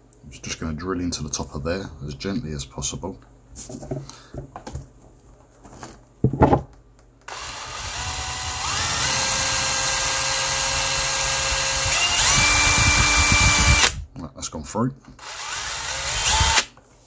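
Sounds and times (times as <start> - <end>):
drill motor whining: 7.3 - 14.0, 15.2 - 16.7.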